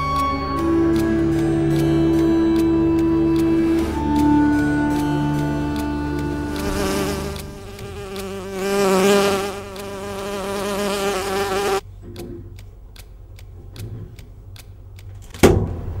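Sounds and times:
steady ticking: 0.2 - 11.8
insect buzzing: 5.8 - 11.8.

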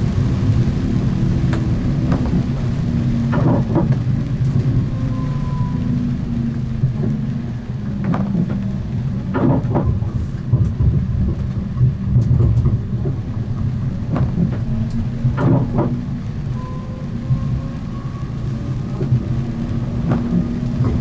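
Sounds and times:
tram rumbling on track: 0.0 - 21.0
running gear knocks and clacks: 8.0 - 16.0.

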